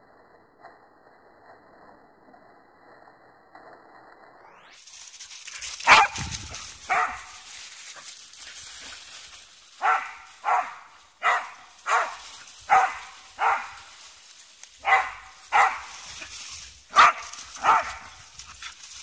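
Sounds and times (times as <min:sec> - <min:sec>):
dog barking: 0:05.8 - 0:07.4, 0:09.8 - 0:13.9, 0:14.8 - 0:15.9, 0:16.9 - 0:18.2.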